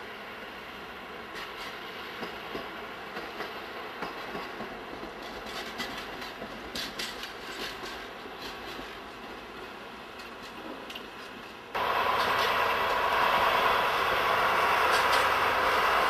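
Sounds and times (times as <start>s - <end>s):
diesel locomotive rumble: 0.0s - 16.0s
wheels clacking over rail joints: 1.3s - 13.4s, 14.0s - 16.0s.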